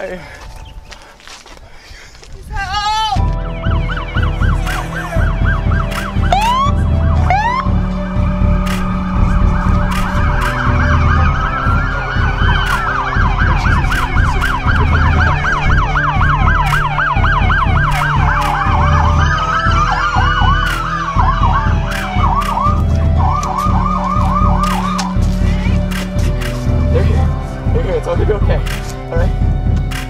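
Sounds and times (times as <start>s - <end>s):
siren yelp: 3.2s - 25.9s
siren wail: 3.2s - 27.6s
low rumble: 3.2s - 29.9s.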